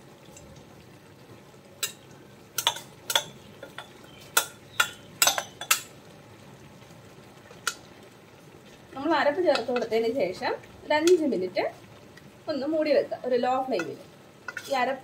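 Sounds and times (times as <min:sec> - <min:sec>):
faint sizzle from pan: 0:00.0 - 0:15.0
steel spoon clinking on pan: 0:02.6 - 0:05.9, 0:13.8 - 0:14.8.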